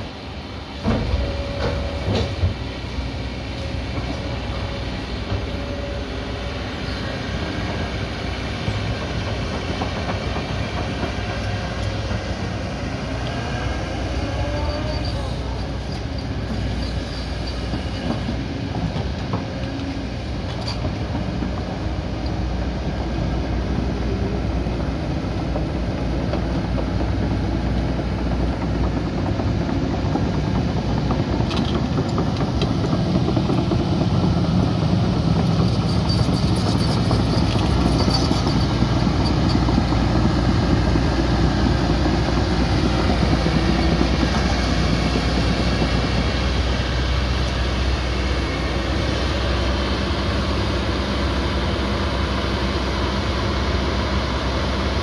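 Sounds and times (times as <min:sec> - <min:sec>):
excavator diesel engine: 0:00.0 - 0:55.0.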